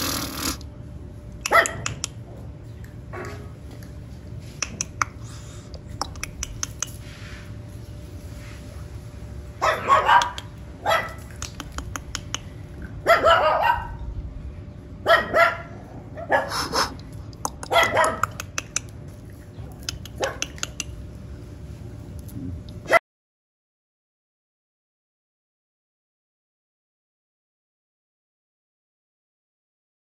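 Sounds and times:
puppy barking: 1.4s - 2.2s, 9.6s - 14.0s, 15.0s - 18.9s, 19.7s - 20.9s.

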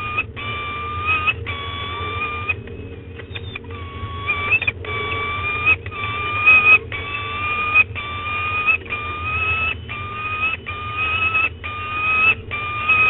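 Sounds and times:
falcon wailing calls: 3.7s - 13.0s.

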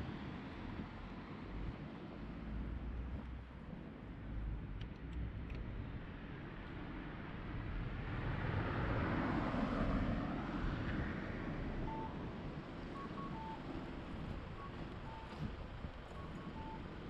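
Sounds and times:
car passing: 8.0s - 12.3s.

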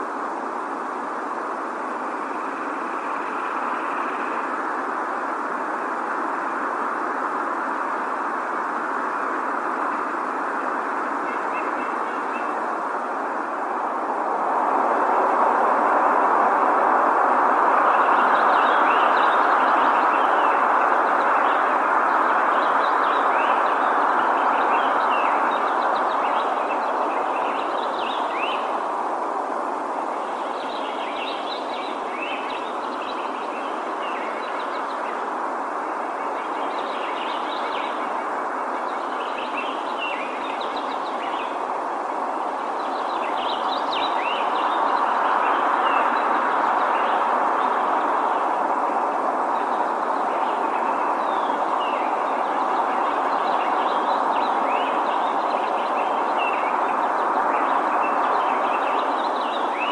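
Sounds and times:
steady rushing noise: 0.0s - 59.9s
small birds chirping: 17.8s - 29.3s, 29.9s - 59.9s.

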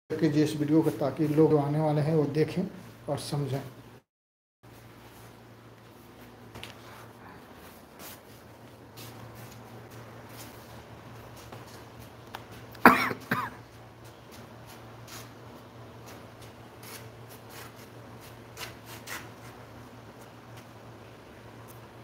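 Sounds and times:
man coughing: 12.8s - 13.6s.

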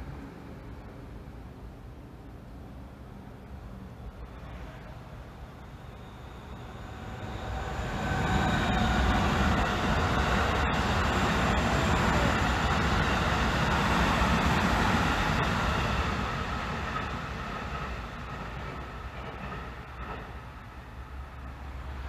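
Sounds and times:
electric train passing: 2.6s - 22.0s
crossing warning bell: 5.6s - 9.2s.

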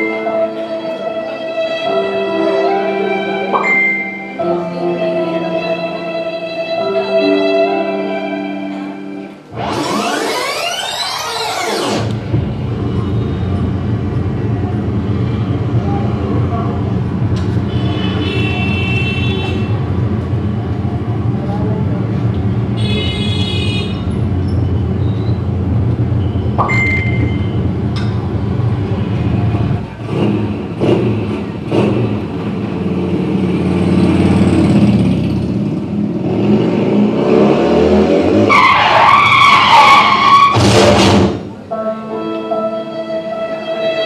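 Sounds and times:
music over loudspeakers: 0.0s - 17.3s, 40.6s - 44.0s
car engine sound effect: 9.5s - 17.8s
high squeals: 9.6s - 12.1s.

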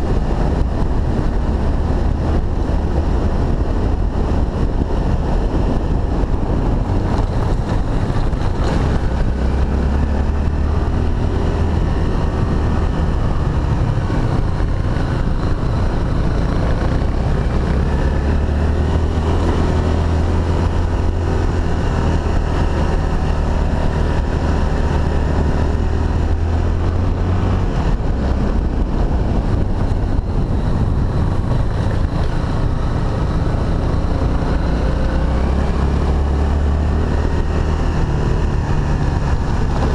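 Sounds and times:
motorcycle engine running: 0.0s - 39.9s
wind noise on microphone: 0.0s - 39.9s.

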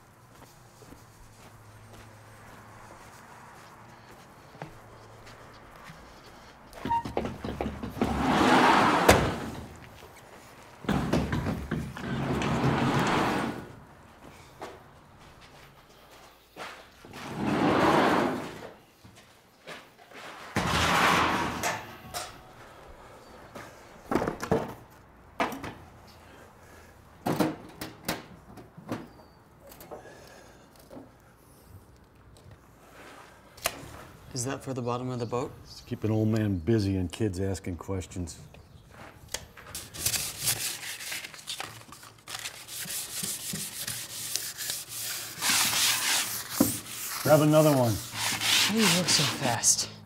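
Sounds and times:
wooden boards and tools knocking: 6.8s - 9.7s, 10.8s - 13.1s
sandpaper rasping on wood: 42.6s - 49.9s.

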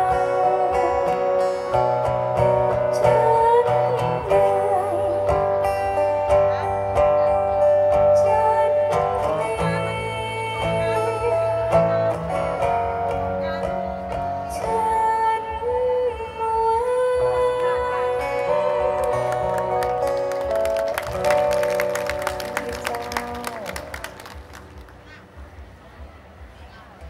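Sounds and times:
woman singing into a microphone: 0.0s - 6.0s, 7.6s - 12.7s, 14.4s - 20.0s, 22.5s - 24.2s
instrumental accompaniment: 0.0s - 25.7s.

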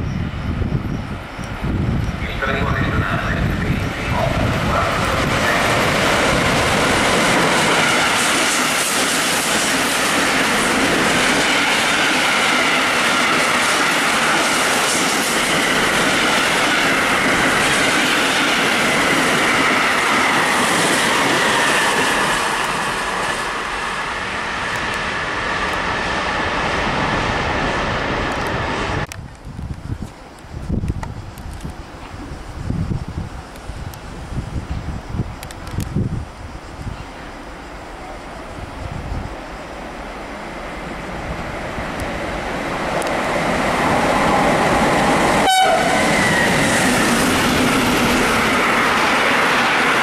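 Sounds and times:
train wheels on rails: 0.0s - 50.0s.

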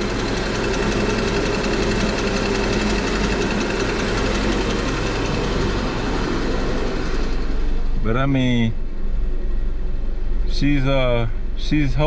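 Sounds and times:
engine knock: 0.0s - 7.9s
car engine idling: 0.0s - 12.0s.

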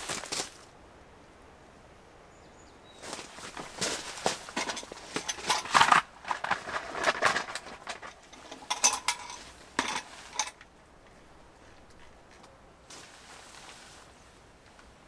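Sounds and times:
footsteps crunching on gravel: 0.0s - 0.6s, 3.0s - 8.2s, 12.9s - 14.0s
metal lantern clinking and rattling: 3.5s - 10.7s.

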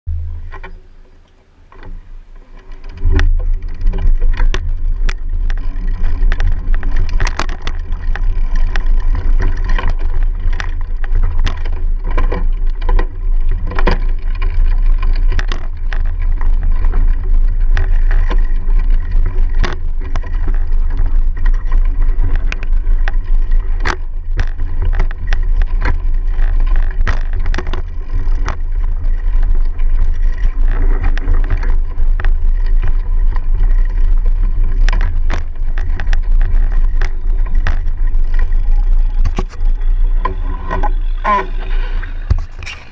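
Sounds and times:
bike knocks and rattles: 0.1s - 41.6s
wind rumble on microphone: 0.1s - 42.9s.

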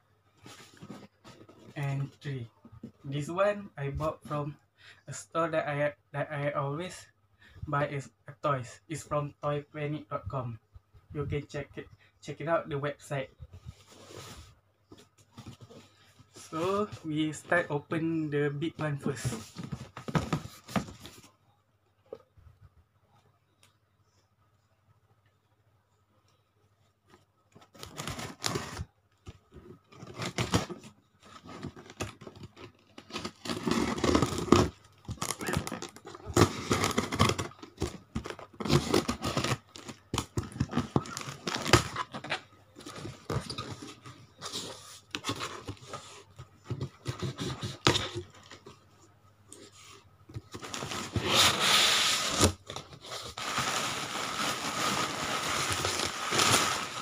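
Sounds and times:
packing tape tearing: 31.8s - 42.3s, 50.6s - 57.0s
cardboard flaps scraping: 50.4s - 57.0s
plastic wrapping crinkling: 52.3s - 57.0s.

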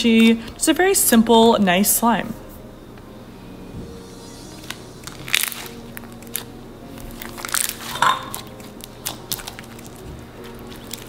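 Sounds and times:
quiet background music: 0.0s - 11.0s
crunchy slime crackling and popping: 5.0s - 11.0s.

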